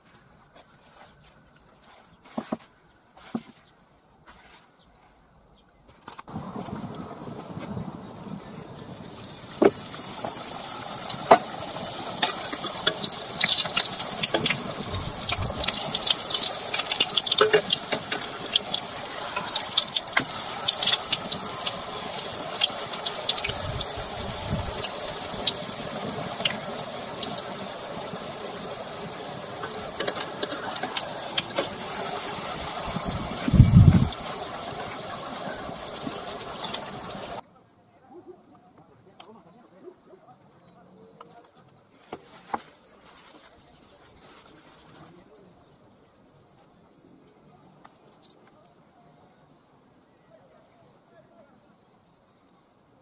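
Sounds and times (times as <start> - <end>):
dough sizzling in hot oil: 8.4 - 37.4
sharp pops of frying oil: 9.5 - 25.6.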